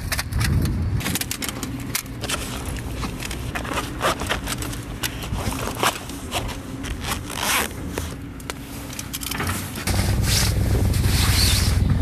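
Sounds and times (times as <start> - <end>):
zipper being pulled: 5.4 - 8.2.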